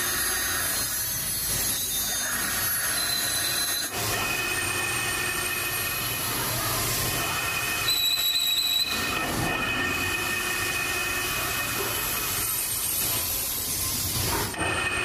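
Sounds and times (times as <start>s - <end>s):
sharp metallic squeal: 0.0s - 6.0s, 7.2s - 12.8s
metal lathe whining: 0.0s - 15.0s.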